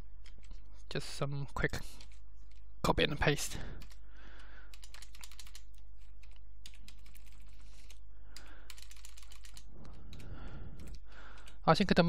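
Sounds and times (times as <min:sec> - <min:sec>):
keyboard keys tapping: 0:04.7 - 0:11.6.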